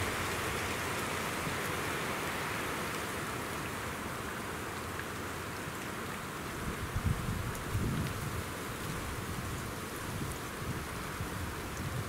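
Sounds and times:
choppy lake water: 0.0 - 12.0
wind blowing through pine trees: 0.0 - 12.0.

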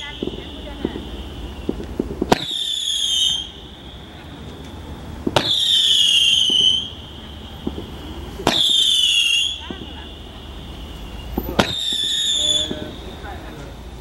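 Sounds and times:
firework launch pop: 0.0 - 3.4, 4.5 - 6.9, 7.6 - 9.0, 11.3 - 12.9
firework high whistle: 0.0 - 14.0.

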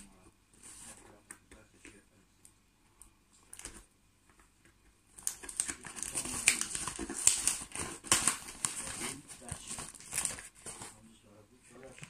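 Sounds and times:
paper crinkling and tearing: 5.2 - 11.0.

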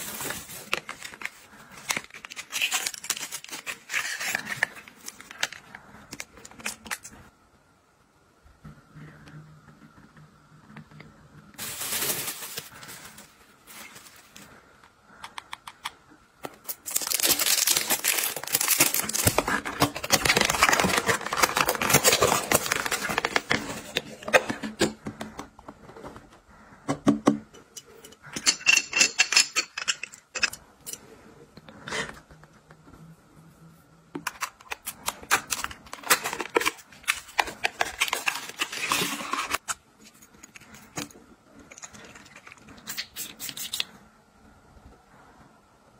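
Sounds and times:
packaging crinkling and tearing: 0.0 - 7.1, 11.6 - 14.5, 16.5 - 24.9, 34.3 - 43.9.

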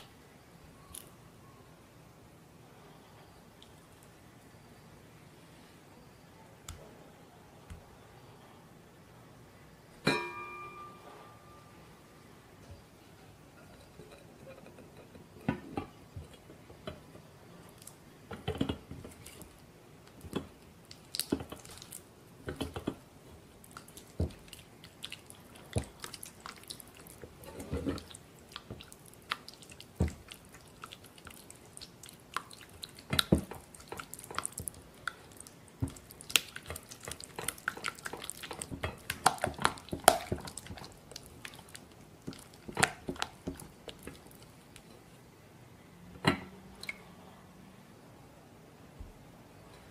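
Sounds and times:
spatula squishing soft cheese: 18.7 - 45.0.

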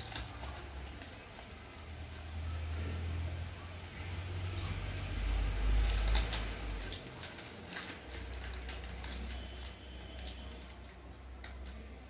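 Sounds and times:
plastic chip packet crinkling: 0.0 - 3.0, 5.6 - 12.0
chewing potato chips: 4.5 - 12.0.

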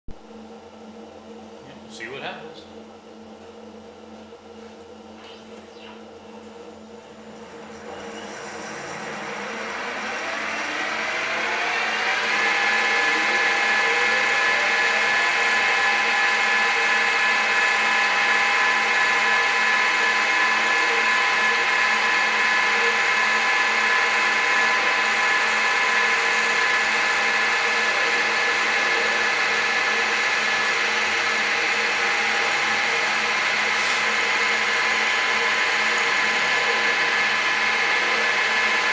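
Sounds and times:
milling machine whining: 2.7 - 38.9.

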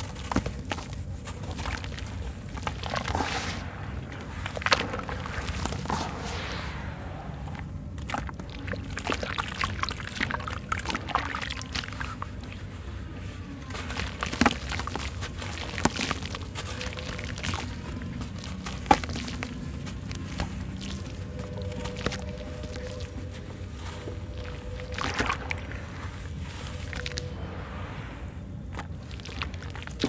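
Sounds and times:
wet cement crumbled by hand: 0.0 - 6.3, 13.7 - 27.3, 28.7 - 30.0.

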